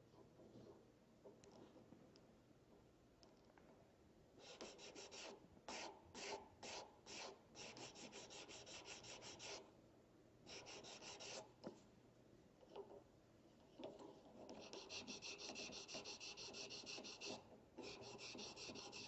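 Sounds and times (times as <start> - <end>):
file rasping on eyeglass frame: 14.6 - 19.0.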